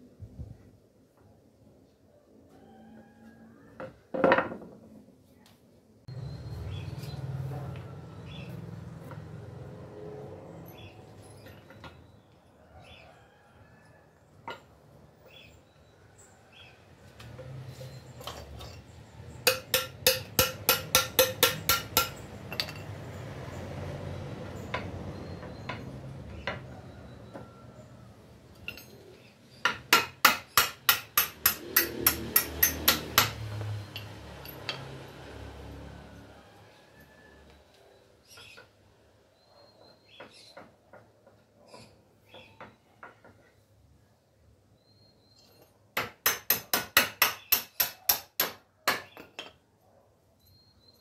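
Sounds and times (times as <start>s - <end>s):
hammer striking wood: 19.4s - 22.2s, 29.6s - 33.7s, 46.0s - 49.3s.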